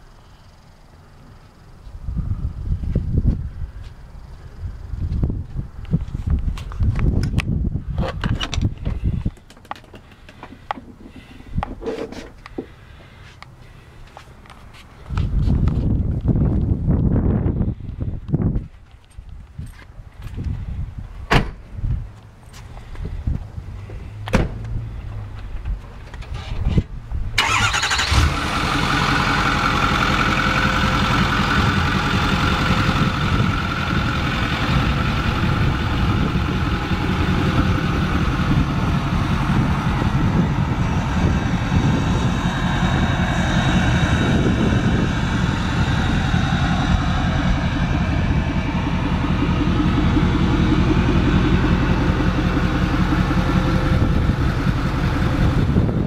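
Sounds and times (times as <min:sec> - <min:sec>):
diesel engine starting: 0:07.3 - 0:14.1, 0:23.8 - 0:56.0
diesel engine idling: 0:09.0 - 0:11.8, 0:27.4 - 0:56.0.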